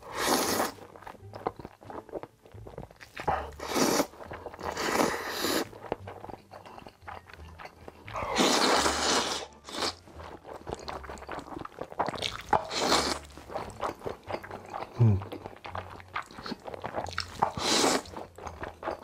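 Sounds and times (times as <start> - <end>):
loud slurps of noodles: 0.0 - 0.8, 3.5 - 5.7, 8.2 - 10.0, 12.7 - 13.3, 17.4 - 18.1
wet chewing and crunching: 0.0 - 19.0.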